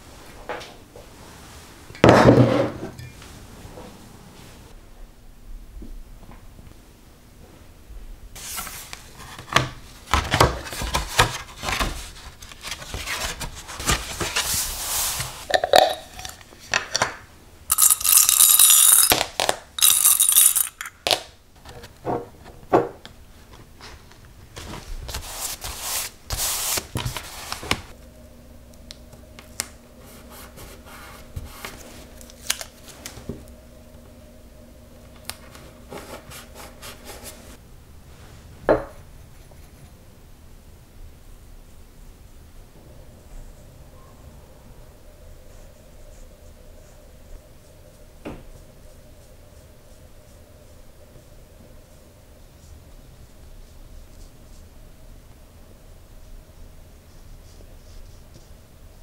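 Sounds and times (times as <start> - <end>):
faint steady hum: 0.0 - 59.0
paper sliding and rustling: 8.4 - 15.5, 24.6 - 27.9.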